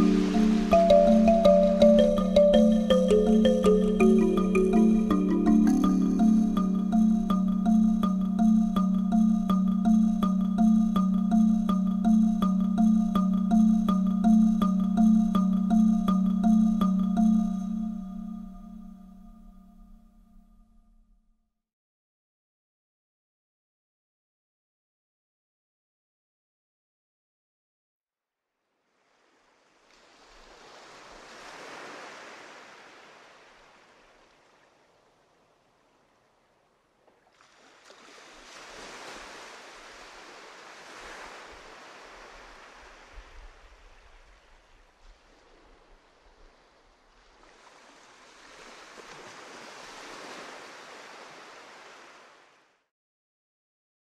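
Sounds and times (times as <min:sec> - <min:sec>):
sea waves breaking: 0:00.0 - 0:06.8, 0:29.0 - 0:52.8.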